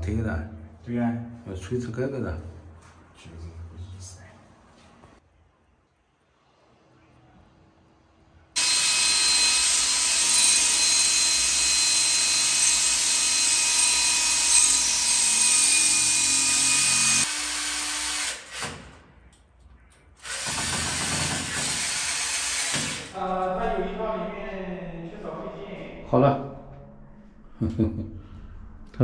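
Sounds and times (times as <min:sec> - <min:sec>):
drill grinding into tile: 0:08.6 - 0:18.8, 0:20.2 - 0:23.1.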